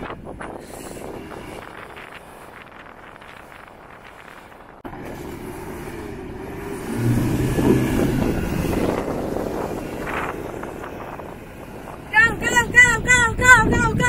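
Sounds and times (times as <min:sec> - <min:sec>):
engine revving hard: 0:06.6 - 0:10.7.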